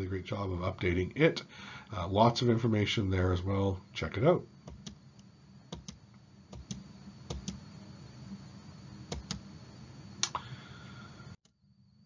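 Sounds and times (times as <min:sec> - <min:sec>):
faint electrical hum: 0:00.0 - 0:12.0
computer mouse clicks: 0:04.7 - 0:07.6, 0:09.1 - 0:09.4, 0:10.2 - 0:10.4.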